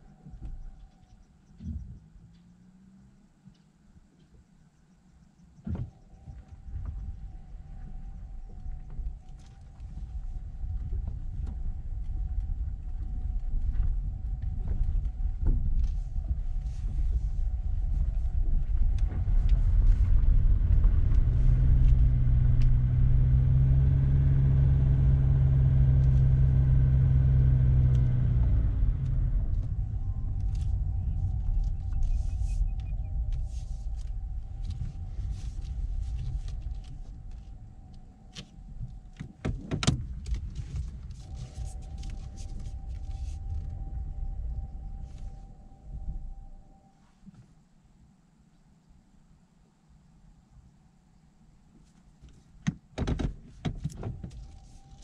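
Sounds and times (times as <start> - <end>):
road and tyre rumble: 0.0 - 46.8, 51.8 - 55.0
loud steady hum: 4.9 - 47.4.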